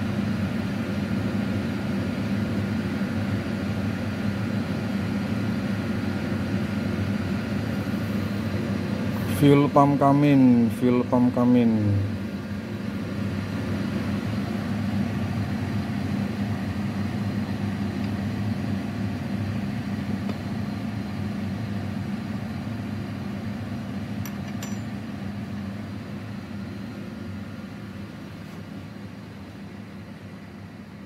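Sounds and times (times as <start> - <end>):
low machine hum: 0.0 - 31.0.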